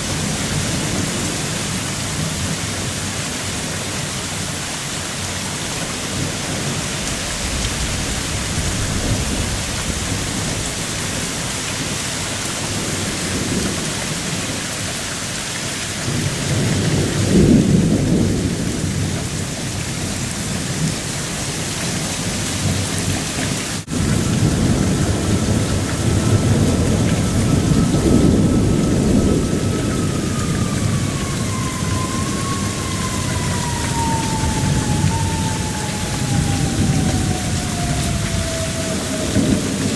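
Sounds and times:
heavy rain pouring: 0.0s - 39.9s
rolling thunder: 5.6s - 14.6s, 16.0s - 21.1s, 22.6s - 39.9s.

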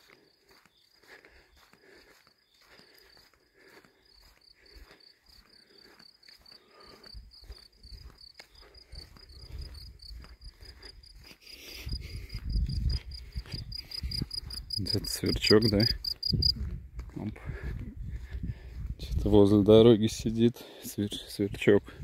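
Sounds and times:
cricket chirping: 0.0s - 16.6s
footsteps on dirt road: 0.0s - 22.0s.

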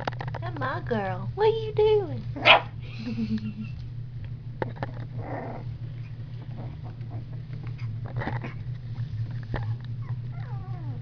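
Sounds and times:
steady low hum: 0.0s - 11.0s
puppies growling: 2.4s - 2.9s, 4.6s - 11.0s.

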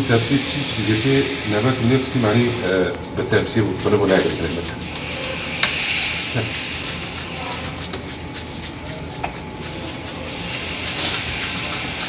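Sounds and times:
steady hiss: 0.0s - 7.8s
hands pressing minced meat: 2.8s - 12.0s.

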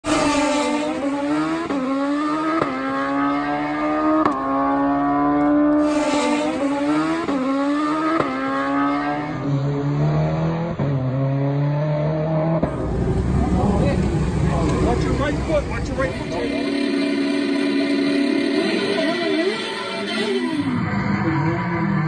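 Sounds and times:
motorcycle engine at high revs: 0.1s - 20.2s.

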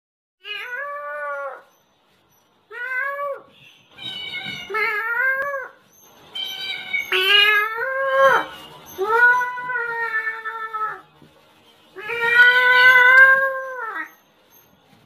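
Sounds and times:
cat meowing: 0.4s - 1.7s, 2.7s - 5.8s, 6.4s - 11.1s, 12.0s - 14.2s.

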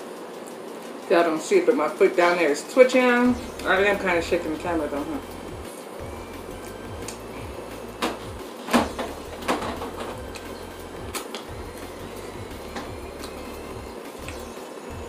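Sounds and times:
low steady hum: 3.1s - 15.0s.

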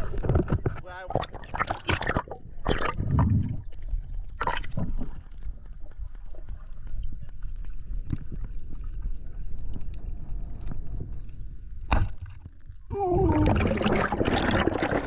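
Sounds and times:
muffled underwater rumble: 0.0s - 11.8s, 12.7s - 15.0s
bubbling gurgling water: 1.1s - 7.1s, 12.8s - 15.0s
sharp crack: 11.8s - 12.5s.

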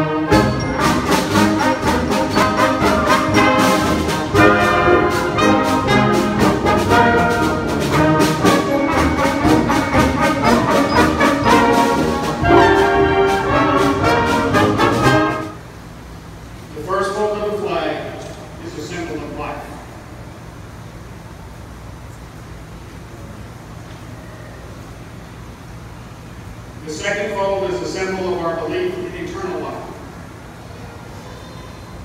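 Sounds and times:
concert band playing: 0.0s - 15.6s.

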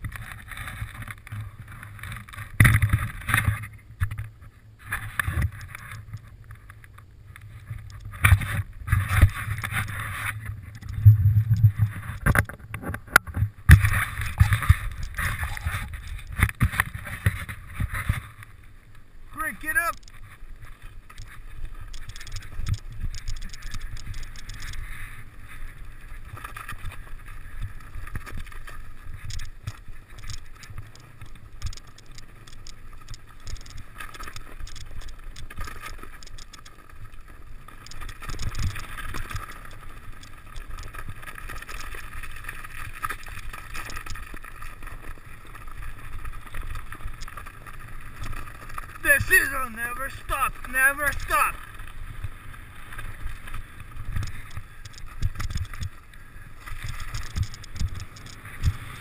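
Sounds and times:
bike knocking and rattling: 0.0s - 6.6s, 7.6s - 18.4s, 53.0s - 56.0s, 56.7s - 59.0s
wind rumble on microphone: 5.1s - 18.4s
tyres crunching through snow: 32.3s - 59.0s.

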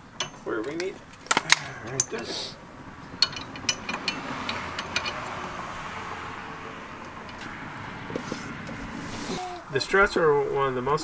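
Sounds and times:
metal hardware clicking: 0.2s - 2.2s, 3.1s - 5.4s.

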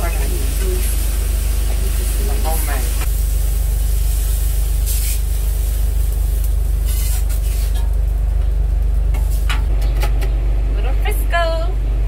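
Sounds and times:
machinery low drone: 0.0s - 12.0s.

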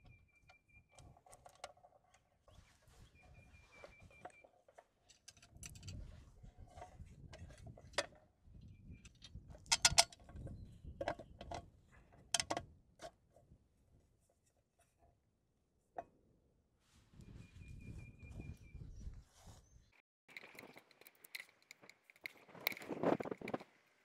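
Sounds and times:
metal box clicks and knocks: 9.6s - 10.3s.

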